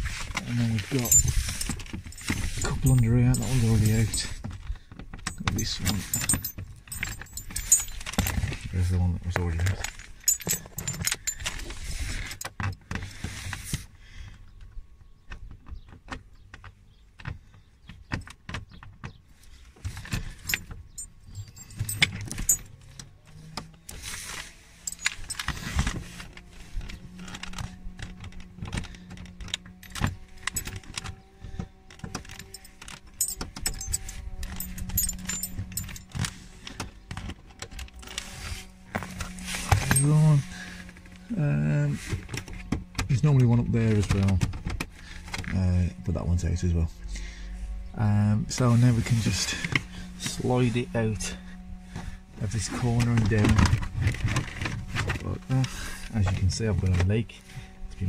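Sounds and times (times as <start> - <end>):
low steady hum: 0.0 - 13.3, 19.3 - 58.0
metal fixings jingling in hand: 0.4 - 4.4, 5.2 - 12.7, 20.2 - 22.8, 24.8 - 25.8, 29.8 - 30.9, 32.2 - 36.3, 38.9 - 40.5.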